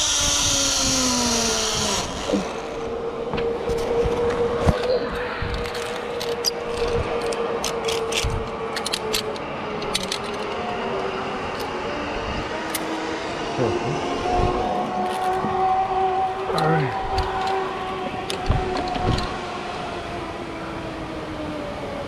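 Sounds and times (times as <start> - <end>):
higher pulley hum: 0.0 - 9.6
zipline pulleys whirring: 0.0 - 20.8.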